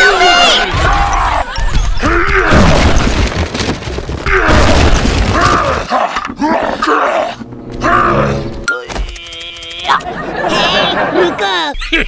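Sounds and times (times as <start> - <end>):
cartoon booms and rumbling: 2.2 - 5.9.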